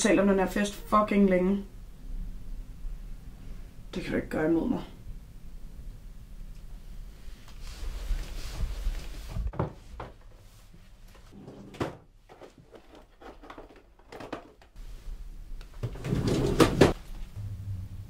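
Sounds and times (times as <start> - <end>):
drawer being rummaged: 11.3 - 14.7, 15.8 - 17.0
drawer knocks and clicks: 11.5 - 12.1, 15.8 - 17.0.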